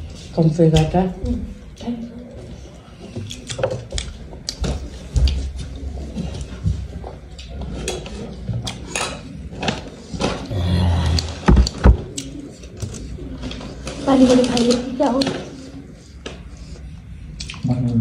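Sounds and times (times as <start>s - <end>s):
chewing and mouth clicks: 17.4s - 17.7s.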